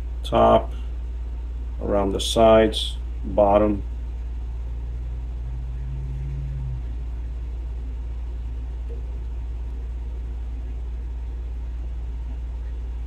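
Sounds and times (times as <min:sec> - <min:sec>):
steady low hum: 0:00.0 - 0:13.0
higher hum: 0:03.6 - 0:09.9.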